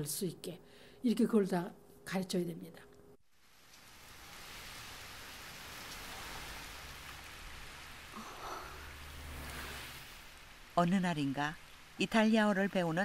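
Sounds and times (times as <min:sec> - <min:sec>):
heavy rain pouring: 0:03.3 - 0:13.0.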